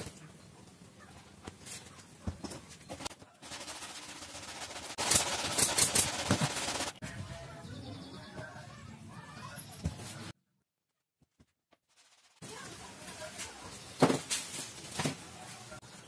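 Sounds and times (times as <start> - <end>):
nail gun firing: 4.8 - 7.0.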